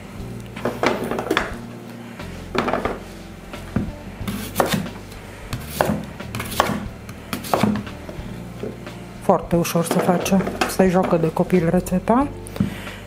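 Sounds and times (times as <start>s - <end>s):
knife cutting on wooden board: 4.2s - 8.0s.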